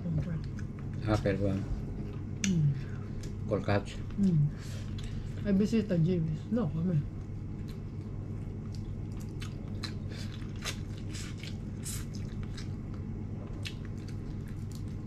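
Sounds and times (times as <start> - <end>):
steady low hum: 0.0 - 15.0
person chewing and crunching food: 4.8 - 5.4, 7.2 - 15.0.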